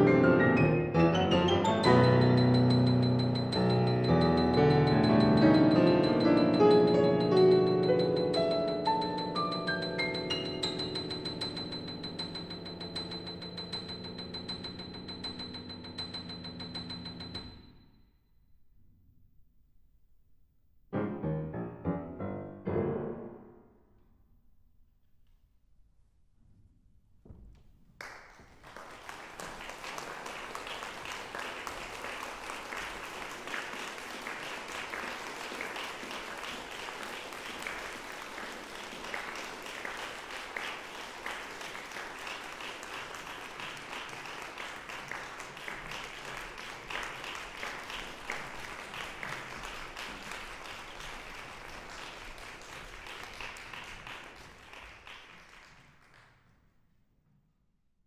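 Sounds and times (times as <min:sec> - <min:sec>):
audience applauding: 0:01.8 - 0:16.8, 0:28.0 - 0:56.3.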